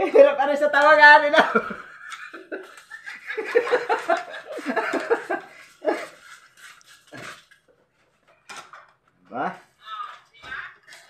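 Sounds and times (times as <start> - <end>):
man laughing: 1.2 - 6.2.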